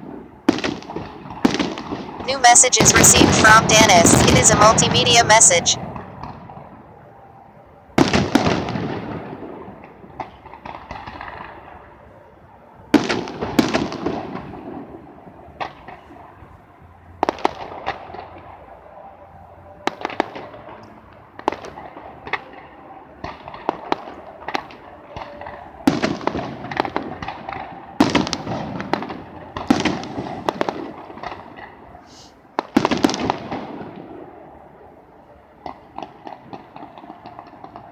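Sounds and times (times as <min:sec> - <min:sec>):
firework pops and crackles: 0:00.1 - 0:02.2, 0:08.0 - 0:11.6, 0:17.2 - 0:18.3, 0:21.4 - 0:22.5, 0:23.2 - 0:31.8, 0:32.6 - 0:34.2, 0:35.6 - 0:37.9
fireworks booming: 0:08.0 - 0:09.8, 0:25.8 - 0:31.7.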